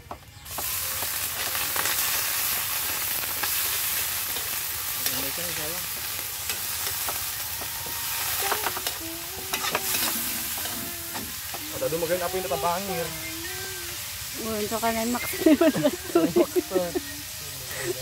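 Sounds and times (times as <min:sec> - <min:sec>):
food sizzling in hot oil: 0:00.4 - 0:18.0
metal spatula scraping pan: 0:08.0 - 0:11.6.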